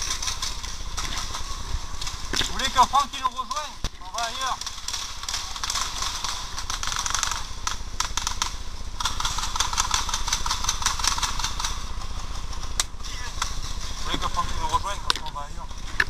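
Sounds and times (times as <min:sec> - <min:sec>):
paintball markers firing: 0:03.8 - 0:14.2.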